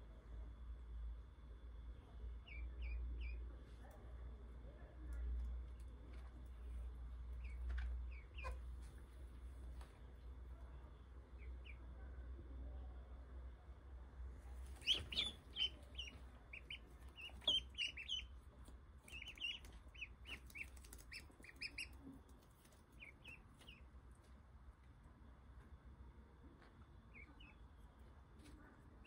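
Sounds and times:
ducklings peeping: 2.4s - 3.5s, 7.2s - 9.1s, 11.3s - 12.0s, 14.6s - 23.9s, 27.0s - 27.8s.

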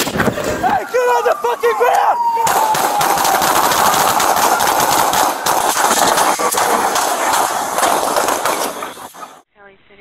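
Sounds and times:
rapid handgun shots: 2.4s - 9.4s.

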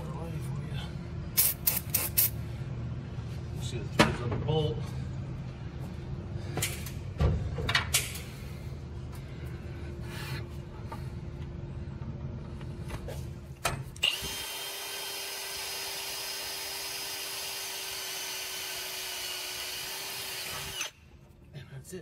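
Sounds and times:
power drill drilling metal: 14.0s - 21.0s.

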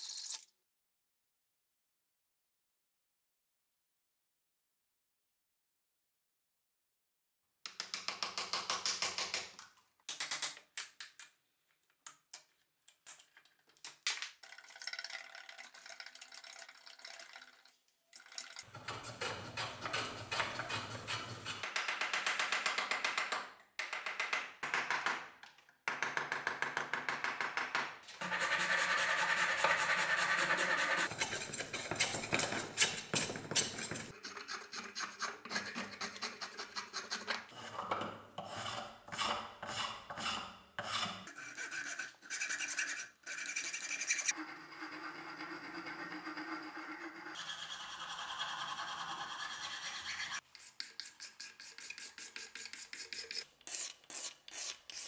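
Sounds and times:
wood rasp scraping wood: 18.7s - 21.7s, 28.2s - 55.0s.

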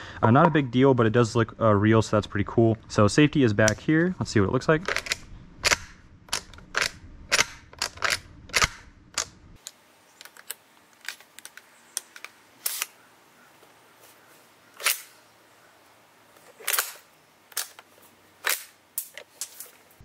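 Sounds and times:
rifle lever action clicking: 4.8s - 9.7s.

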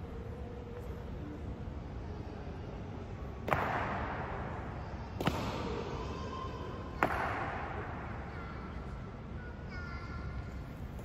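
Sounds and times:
sharp impacts on floor echoing: 3.4s - 8.6s.

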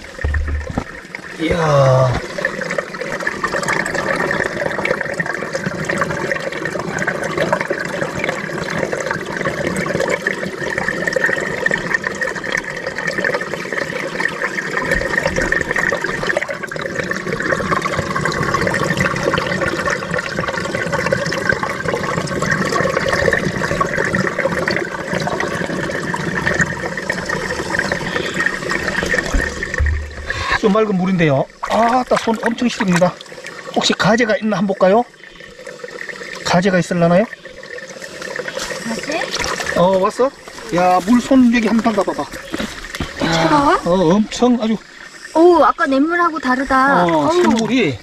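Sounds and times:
spring water trickling over gravel: 26.5s - 48.0s.

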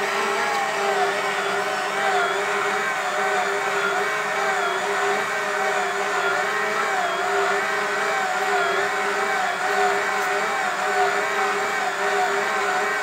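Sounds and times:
stand mixer motor whining: 0.0s - 13.0s.

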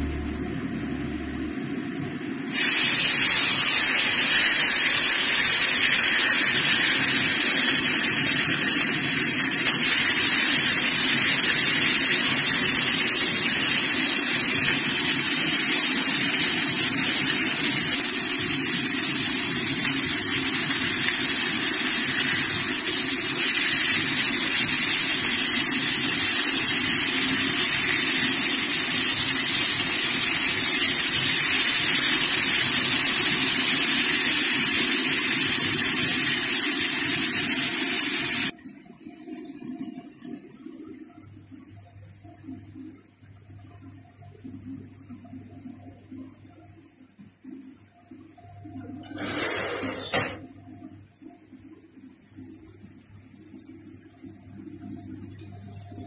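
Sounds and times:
meat sizzling on grill pan: 2.5s - 38.5s.

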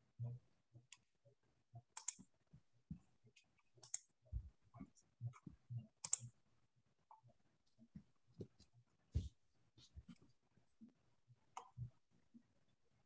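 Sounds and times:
small clicks: 2.0s - 2.3s, 6.0s - 6.3s.

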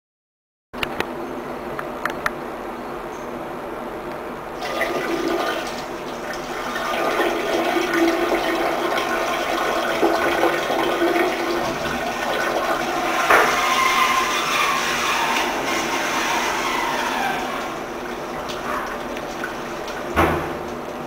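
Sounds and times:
urine splashing into toilet: 4.6s - 21.0s.

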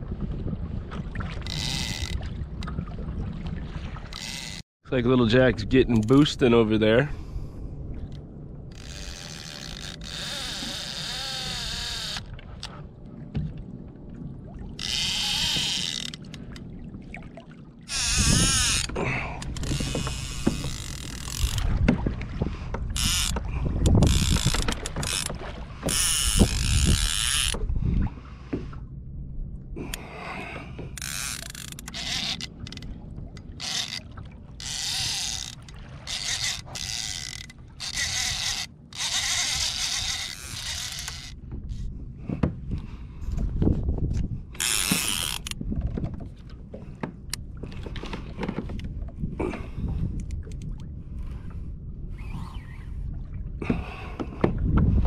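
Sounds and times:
fishing reel ratcheting: 1.4s - 2.2s, 4.1s - 4.6s, 8.7s - 12.7s, 14.8s - 16.6s, 17.9s - 21.7s, 23.0s - 27.6s, 31.0s - 32.9s, 33.6s - 41.4s, 44.6s - 45.6s
low bumps and rumble: 17.9s - 34.7s, 40.1s - 55.0s.

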